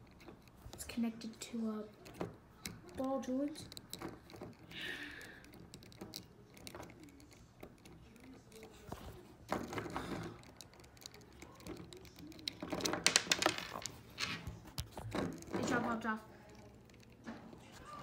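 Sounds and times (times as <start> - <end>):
plastic figure clicking: 2.0 - 14.0.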